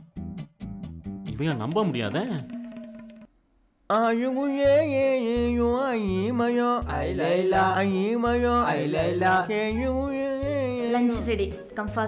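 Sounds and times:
person singing melodically: 0:03.9 - 0:11.2.

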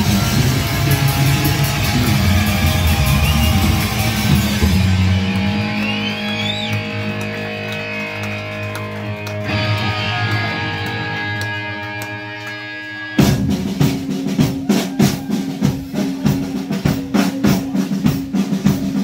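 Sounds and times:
electric guitar chords ringing: 0:00.0 - 0:13.4
live rock band: 0:00.0 - 0:19.0.

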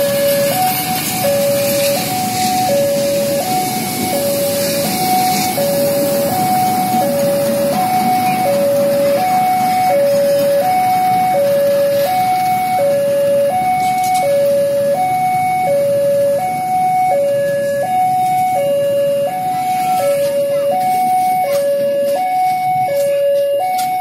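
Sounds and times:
train coaches rumbling past: 0:00.0 - 0:24.0
two-tone level crossing alarm: 0:00.0 - 0:24.0.

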